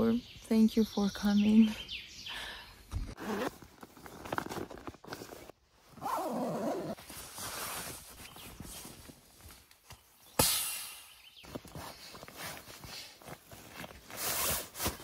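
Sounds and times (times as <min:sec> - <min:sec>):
nylon fabric rustling: 0:03.1 - 0:09.7, 0:11.4 - 0:15.0.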